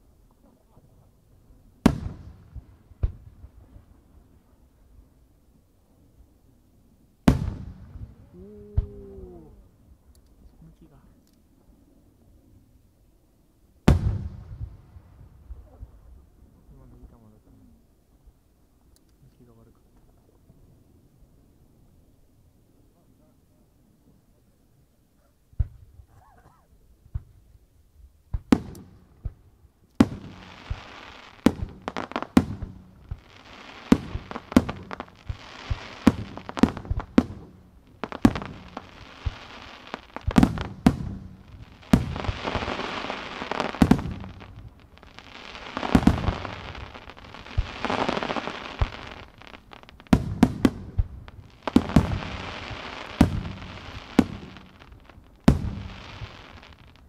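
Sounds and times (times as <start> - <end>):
firework hiss: 30.0 - 57.0.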